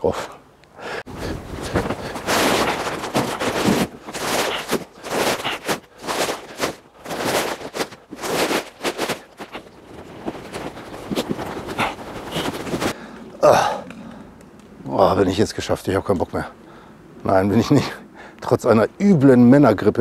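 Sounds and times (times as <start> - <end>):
plastic sacks thumping: 1.6 - 12.9.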